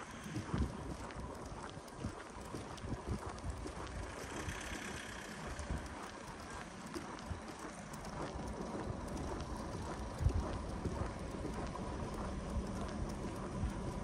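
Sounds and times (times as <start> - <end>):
steady outdoor hiss: 0.0 - 14.0.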